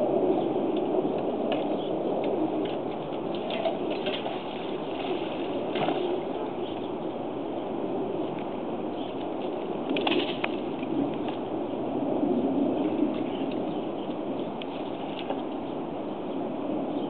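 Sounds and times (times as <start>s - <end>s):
shallow water splashing: 3.4s - 6.3s.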